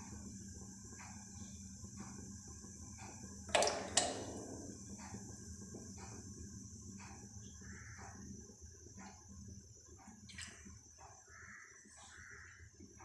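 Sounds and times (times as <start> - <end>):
oil pouring: 3.5 - 6.0.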